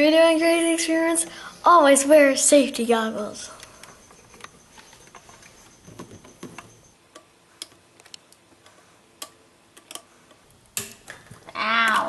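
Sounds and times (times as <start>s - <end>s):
light clicks and taps handling parts: 3.6s - 11.4s.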